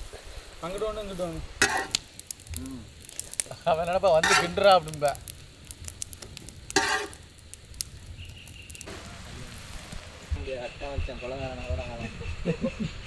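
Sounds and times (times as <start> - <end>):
noodles sizzling in pan: 0.0 - 10.4
spatula scraping metal pan: 1.6 - 2.0, 4.2 - 4.7, 6.8 - 7.2.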